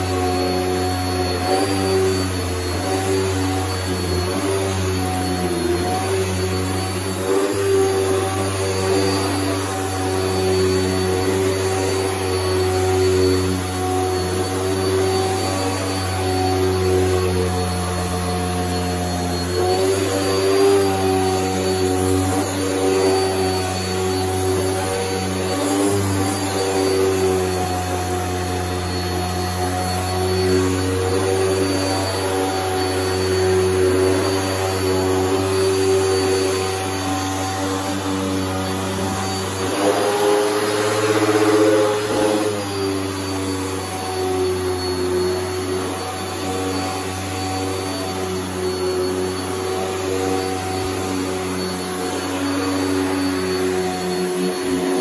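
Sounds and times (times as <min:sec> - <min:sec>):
vacuum cleaner running on carpet: 0:00.0 - 0:55.0.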